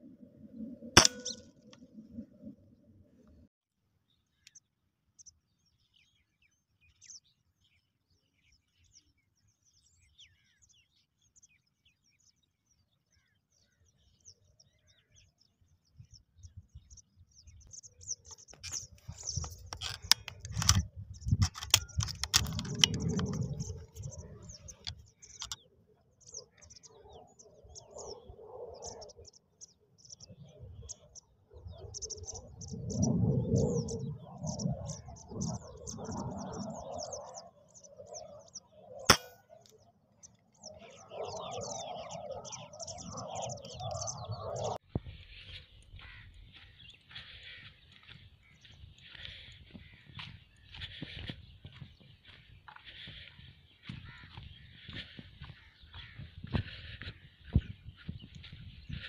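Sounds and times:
starlings chattering: 1.0s - 1.5s, 17.5s - 28.2s, 40.2s - 59.0s.

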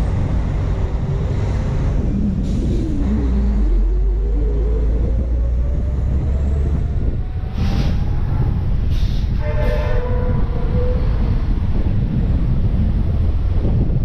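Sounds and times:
truck engine rumble: 0.0s - 14.0s
air brake hissing bursts: 8.9s - 9.4s.

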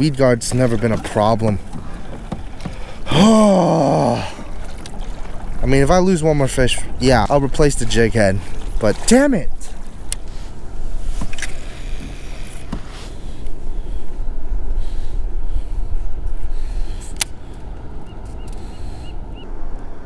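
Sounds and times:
wind rumbling on microphone: 9.5s - 20.0s.

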